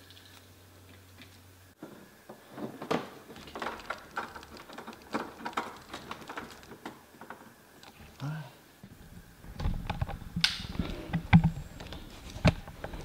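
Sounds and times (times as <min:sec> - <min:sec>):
cables rustling: 0:00.0 - 0:13.0.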